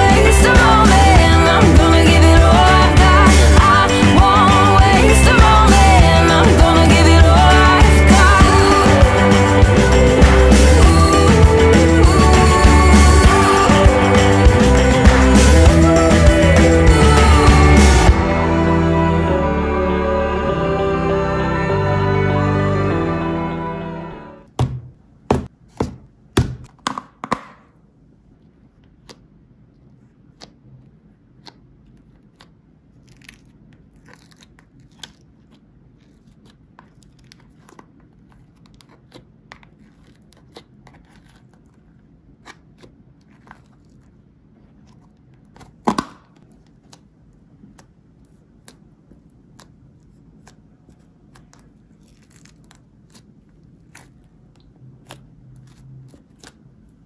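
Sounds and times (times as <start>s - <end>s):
slime crackling and squishing: 30.3s - 45.8s, 46.4s - 57.0s.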